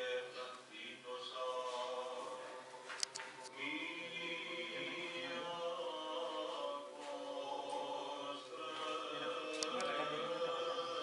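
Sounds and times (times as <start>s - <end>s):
choral chanting: 0.0s - 11.0s.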